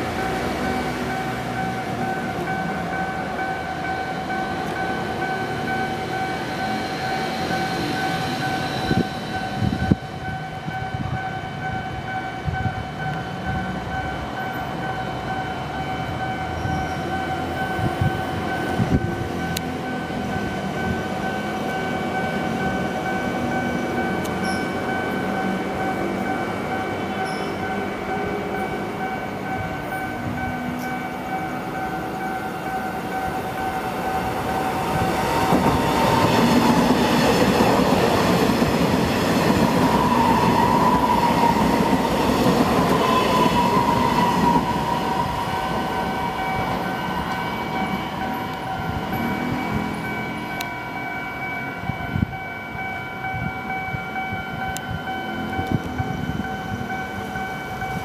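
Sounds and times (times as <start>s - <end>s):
level-crossing warning bell: 0.0s - 58.0s.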